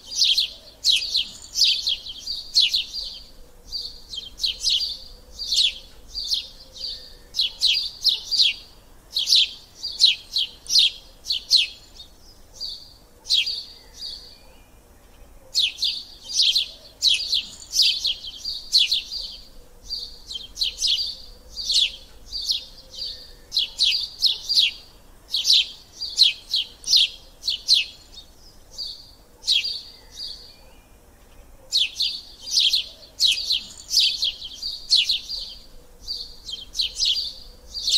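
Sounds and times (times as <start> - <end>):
small bird chirping: 0.0 - 37.9.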